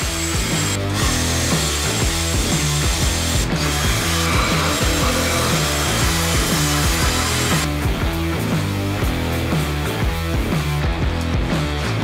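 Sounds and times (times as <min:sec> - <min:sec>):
power tool whirring: 0:00.0 - 0:07.7
background music with beat: 0:00.1 - 0:12.0.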